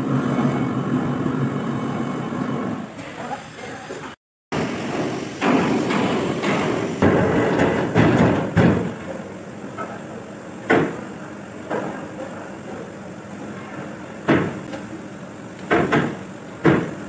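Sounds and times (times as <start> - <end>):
metal clanking and knocking: 5.4 - 9.2.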